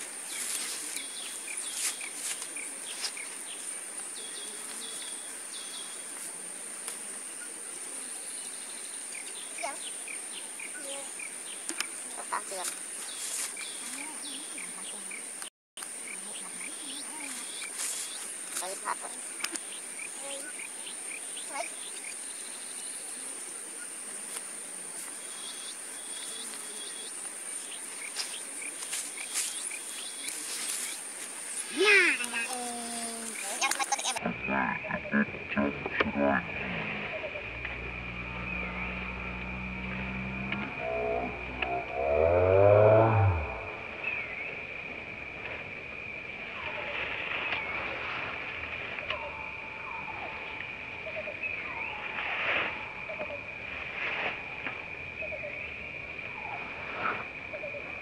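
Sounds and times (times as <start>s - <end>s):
insects droning: 0.0s - 58.0s
faint insect chirps and clicks: 8.4s - 34.2s, 40.5s - 42.3s, 48.9s - 52.2s
high-pitched insect buzz: 36.4s - 43.9s.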